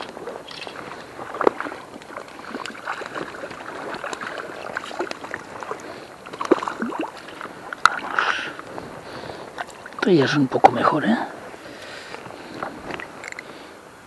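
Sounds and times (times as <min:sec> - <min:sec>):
sharp water splashes: 0:00.0 - 0:10.8
river water sloshing: 0:00.0 - 0:14.0.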